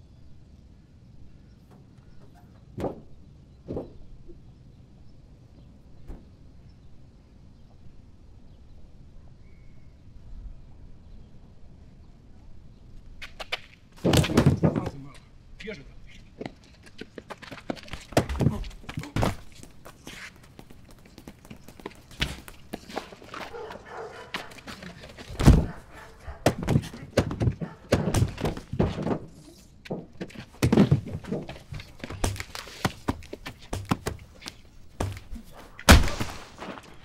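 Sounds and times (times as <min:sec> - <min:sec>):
punches landing with thuds: 0:25.3 - 0:29.3, 0:30.5 - 0:36.9.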